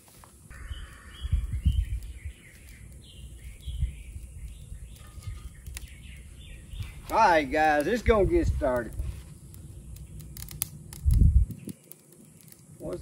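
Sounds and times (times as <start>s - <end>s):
birds chirping: 0.4s - 13.0s
wind rumbling on microphone: 0.4s - 13.0s.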